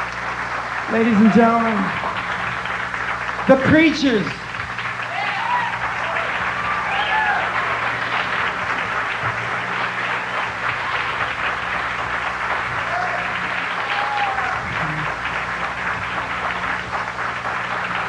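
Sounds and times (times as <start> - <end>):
audience applauding: 0.0 - 18.0
steady low hum: 0.0 - 18.0
whoops: 5.0 - 8.4, 12.7 - 15.2.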